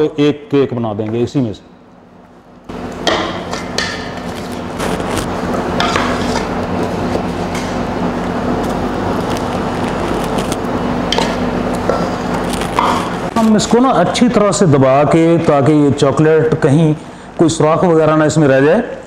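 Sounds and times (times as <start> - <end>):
steady machine hum: 0.0 - 19.0
plastic film crinkling: 9.0 - 10.7.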